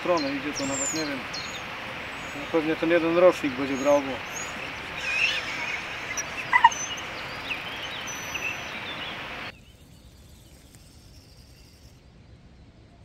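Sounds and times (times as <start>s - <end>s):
steady hiss: 0.0s - 9.5s
small birds chirping: 0.0s - 11.8s.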